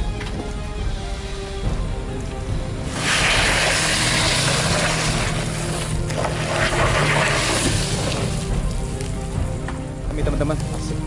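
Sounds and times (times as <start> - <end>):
loud rushing noise: 2.7 - 8.7.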